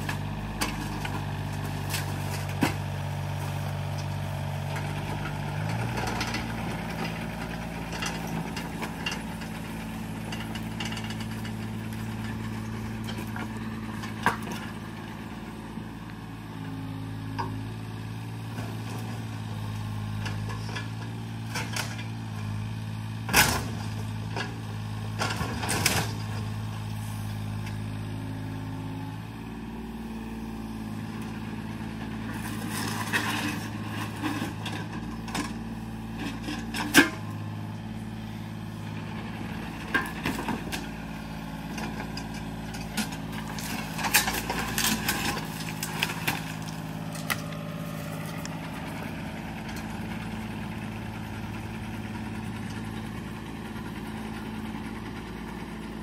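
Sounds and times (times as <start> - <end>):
excavator diesel engine running: 0.0 - 56.0
wood debris knocks and cracks: 42.3 - 48.4.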